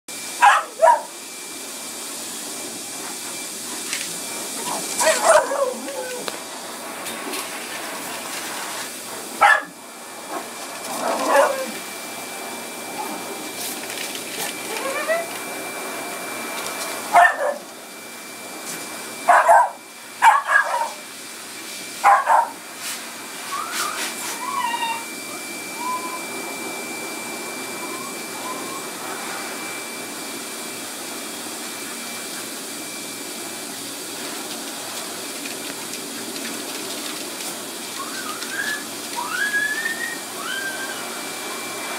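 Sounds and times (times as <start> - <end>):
dogs yipping and whining: 0.4 - 1.2, 4.6 - 6.4, 9.4 - 11.8, 12.9 - 13.2, 14.4 - 15.5, 17.1 - 17.7, 19.3 - 21.0, 22.0 - 22.6, 23.4 - 26.9, 27.6 - 29.4, 37.9 - 41.4
small dogs barking: 0.4 - 1.2, 4.6 - 6.3, 9.4 - 11.8, 17.1 - 17.7, 19.3 - 21.0, 22.0 - 22.6.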